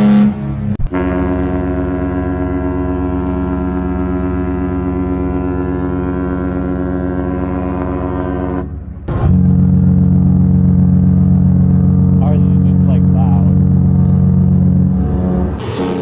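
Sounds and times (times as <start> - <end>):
ship horn blast: 0.0 - 16.0.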